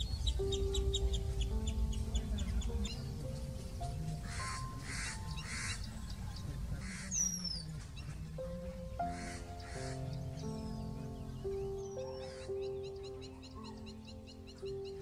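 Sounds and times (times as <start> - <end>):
harsh high bird calls: 0.0 - 8.1, 9.0 - 15.0
background music with held notes: 0.0 - 15.0
bird chirping: 0.0 - 15.0.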